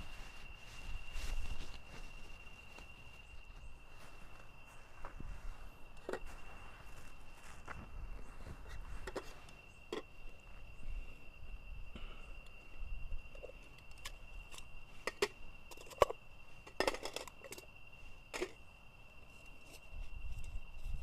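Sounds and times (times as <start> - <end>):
night insects droning: 0.0 - 21.0
cups clicking and knocking: 13.4 - 17.7.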